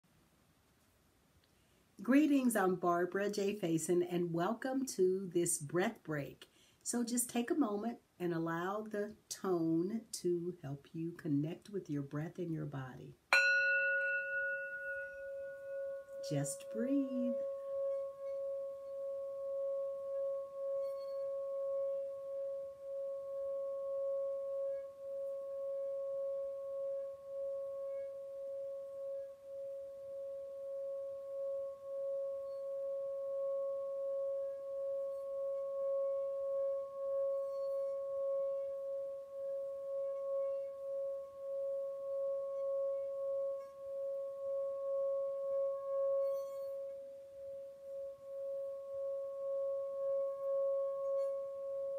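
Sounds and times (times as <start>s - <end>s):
singing bowl tone: 13.3s - 51.9s.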